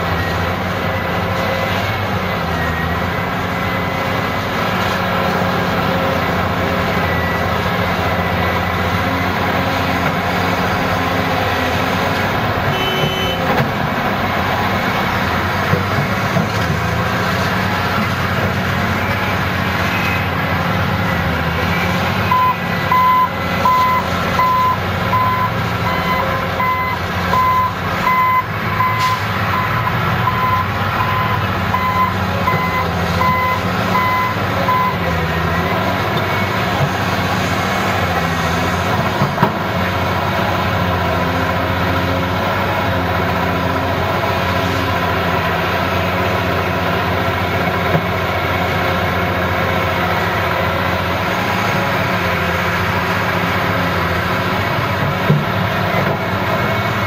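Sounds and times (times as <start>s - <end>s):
excavator diesel engine: 0.0s - 57.0s
reversing alarm beeping: 12.7s - 13.4s, 21.0s - 36.7s.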